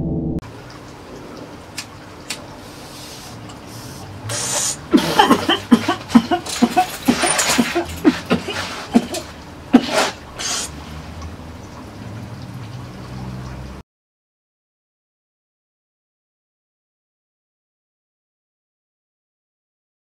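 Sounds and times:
man exhaling: 0:02.8 - 0:05.5
man coughing: 0:04.8 - 0:10.2.

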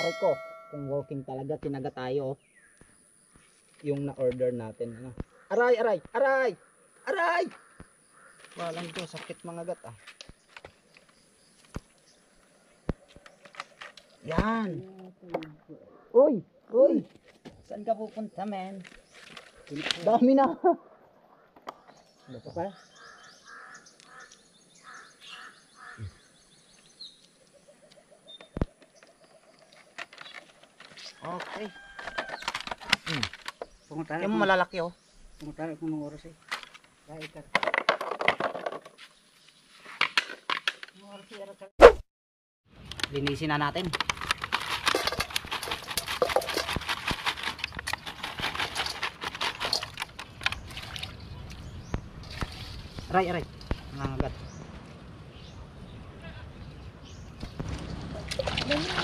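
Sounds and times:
bird calling: 0:04.7 - 0:35.6.

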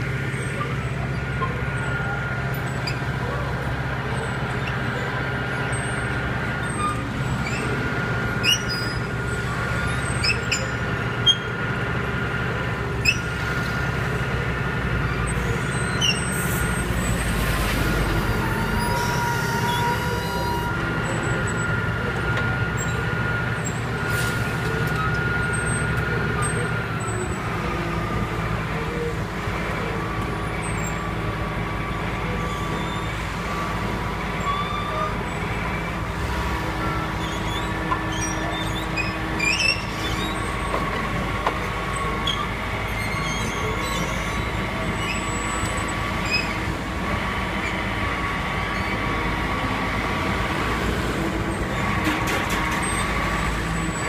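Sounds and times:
diesel engine running: 0:00.0 - 0:54.0
truck driving past: 0:00.0 - 0:54.0.

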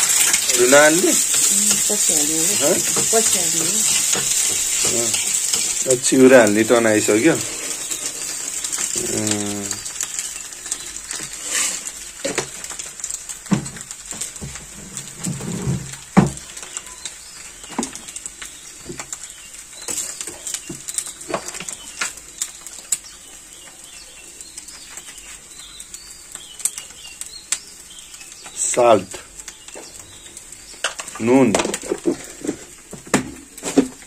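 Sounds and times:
steady high hiss: 0:00.0 - 0:20.0.

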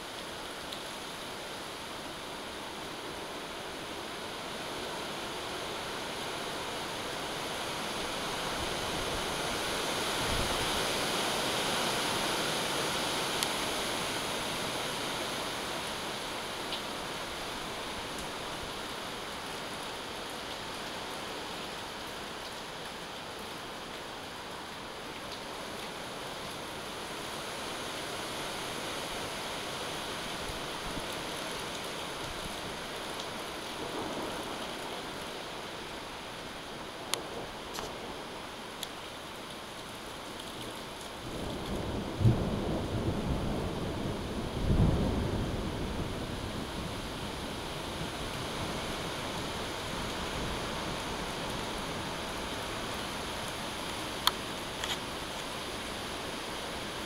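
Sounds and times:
heavy rain downpour: 0:00.0 - 0:57.0
thunder rumble: 0:41.3 - 0:47.0.

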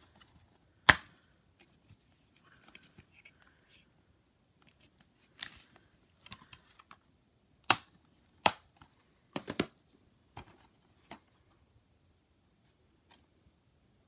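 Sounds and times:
plastic cases clicking: 0:09.4 - 0:09.8.

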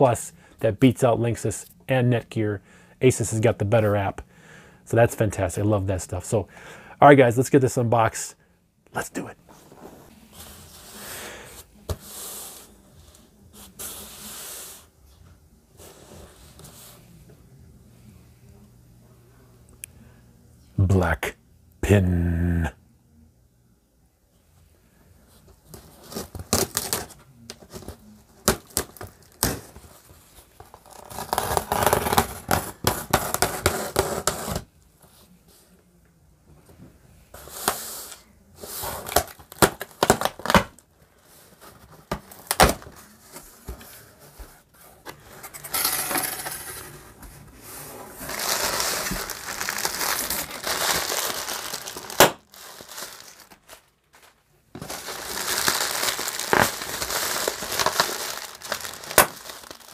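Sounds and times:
packing tape tearing: 0:26.0 - 0:27.2, 0:30.6 - 0:34.6, 0:38.8 - 0:40.8, 0:48.2 - 0:59.9.

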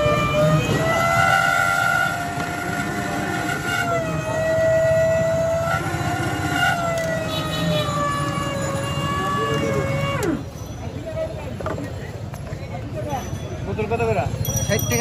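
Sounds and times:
electric motor whining: 0:00.0 - 0:10.4.

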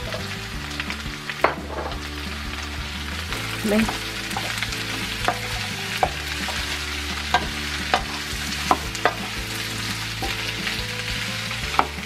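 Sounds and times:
vegetables sizzling in a frying pan: 0:00.0 - 0:12.0
wooden spoon knocking against pan: 0:03.8 - 0:10.5.

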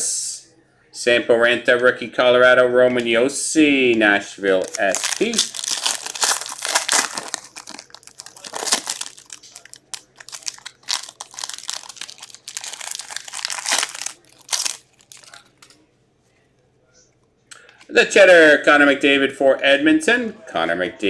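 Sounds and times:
foil wrapper crinkling: 0:04.5 - 0:15.7.

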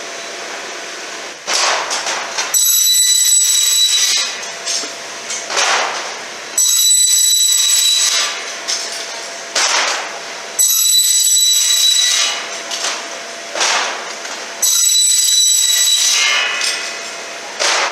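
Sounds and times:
circular saw cutting metal: 0:10.6 - 0:13.5, 0:14.5 - 0:17.9.

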